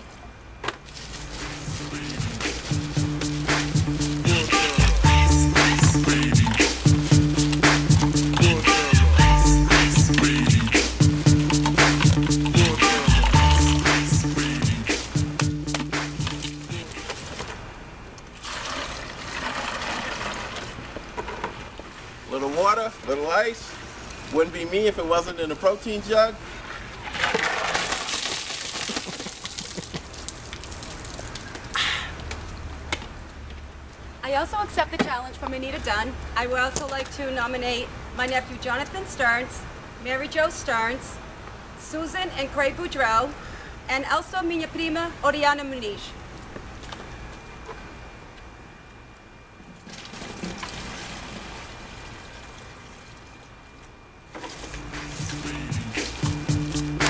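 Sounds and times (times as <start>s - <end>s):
water splashing: 0.9s - 17.7s, 26.6s - 31.7s
water dripping: 1.1s - 17.0s, 28.1s - 32.5s
music with a beat: 1.3s - 17.0s, 54.7s - 57.0s
water pouring into a plastic jug: 18.4s - 20.9s, 26.6s - 31.7s, 49.8s - 53.4s.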